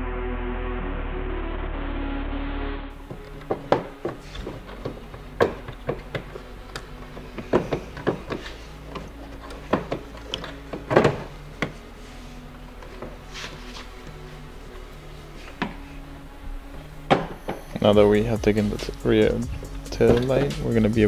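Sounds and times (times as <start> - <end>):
plastic clicks and knocks: 3.1 - 11.8
music snatch: 16.7 - 21.0.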